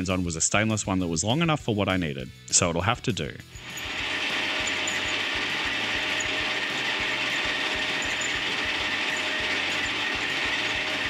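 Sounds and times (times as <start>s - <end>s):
low rattle: 3.6s - 11.0s
metal lathe running: 3.6s - 11.0s.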